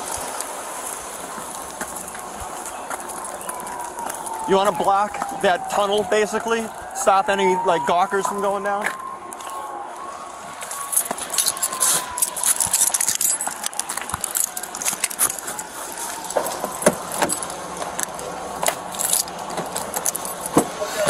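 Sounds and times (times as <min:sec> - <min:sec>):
keys jingling on a belt: 0:10.9 - 0:20.6.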